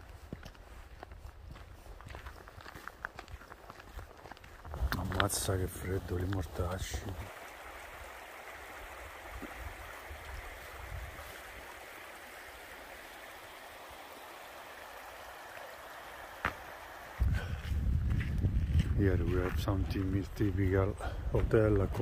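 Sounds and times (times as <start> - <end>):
stream rushing over rocks: 4.9 - 17.6.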